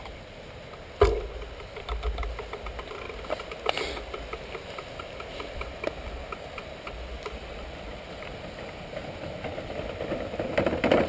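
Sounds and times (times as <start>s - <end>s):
bicycle clicking and rattling: 0.0s - 11.0s
bicycle knocking on wooden planks: 0.0s - 11.0s
wind rumbling on microphone: 0.0s - 11.0s.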